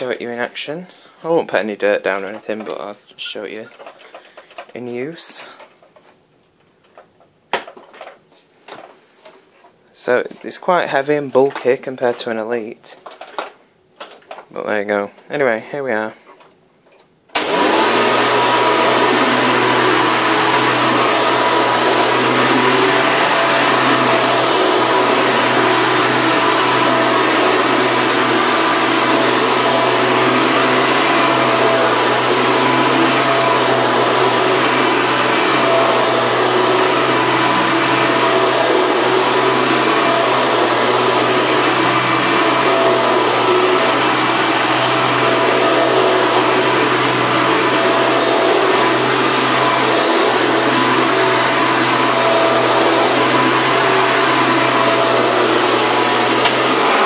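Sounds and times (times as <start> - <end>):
vacuum cleaner running: 0.0 - 0.2, 17.3 - 57.0.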